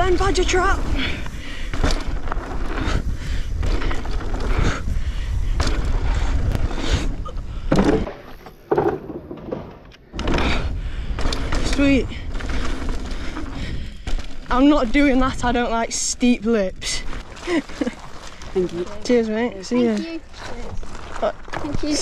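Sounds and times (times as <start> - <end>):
wind rushing over microphone: 0.0 - 8.1
bike tyres and frame rattling: 0.0 - 22.0
bike landing knocks and thuds: 7.6 - 12.5.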